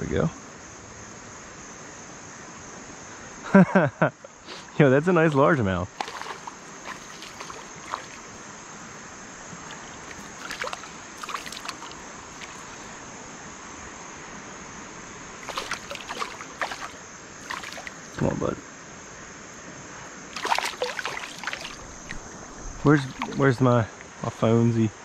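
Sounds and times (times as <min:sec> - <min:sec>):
hiss of moving water: 0:04.4 - 0:13.6, 0:15.3 - 0:18.4, 0:20.0 - 0:24.0
fish splashing and thrashing: 0:05.9 - 0:08.4, 0:09.6 - 0:13.0, 0:15.4 - 0:18.2, 0:20.3 - 0:23.6.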